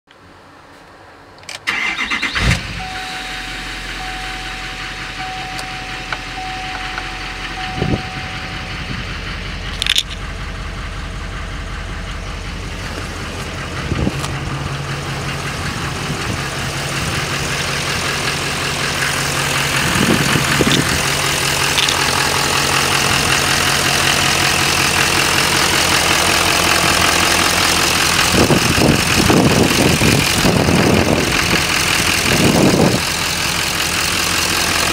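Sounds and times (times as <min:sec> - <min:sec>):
diesel engine idling: 0:01.6 - 0:34.9
dashboard warning chime: 0:02.7 - 0:09.2.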